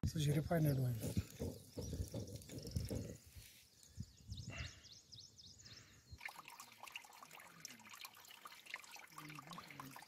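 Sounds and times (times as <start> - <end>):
stream trickling: 0.8 - 3.9, 6.1 - 10.0
water drips and plinks: 1.0 - 3.2, 6.2 - 10.0.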